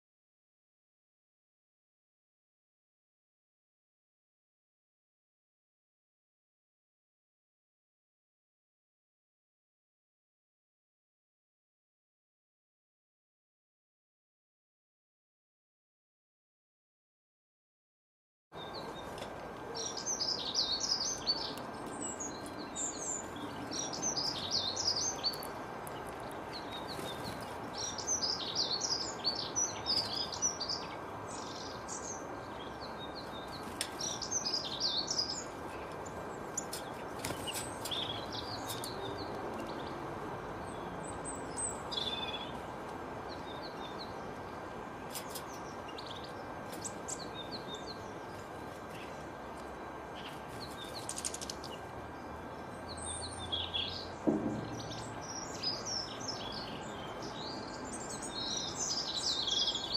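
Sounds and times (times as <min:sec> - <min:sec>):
small songbirds twittering: 0:18.6 - 0:59.9.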